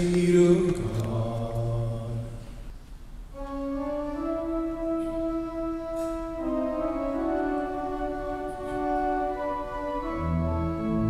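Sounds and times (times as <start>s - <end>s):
organ playing chords: 3.3s - 11.0s
low held organ note: 3.4s - 11.0s.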